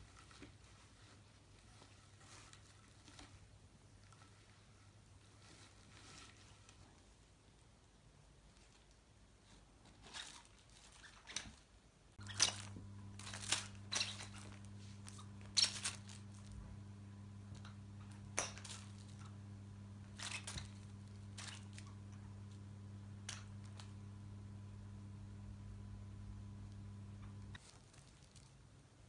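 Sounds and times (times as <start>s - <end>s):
low electrical hum: 0.0s - 29.0s.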